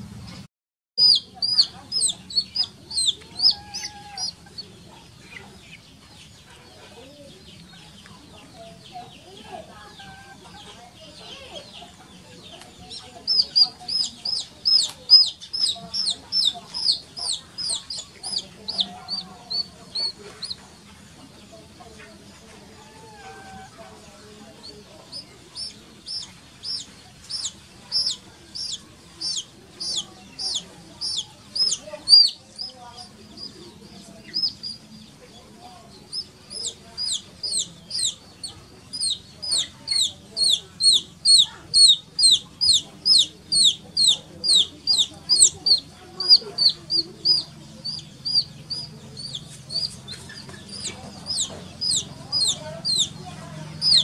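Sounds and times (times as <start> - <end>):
baby chick peeping: 1.0 - 54.0.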